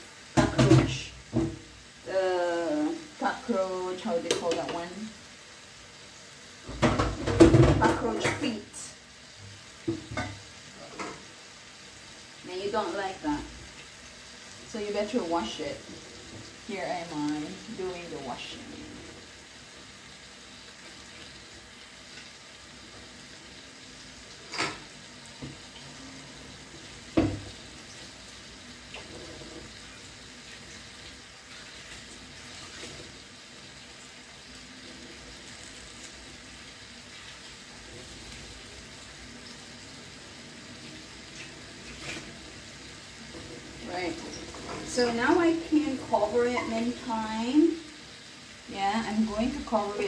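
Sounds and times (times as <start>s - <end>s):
tap water running into sink: 0.3s - 1.8s, 6.6s - 8.5s, 9.8s - 11.2s, 24.4s - 46.6s.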